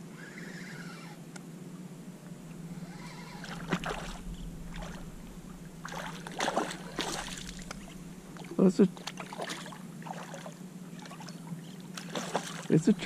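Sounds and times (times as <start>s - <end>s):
fish thrashing and splashing: 2.8s - 12.8s.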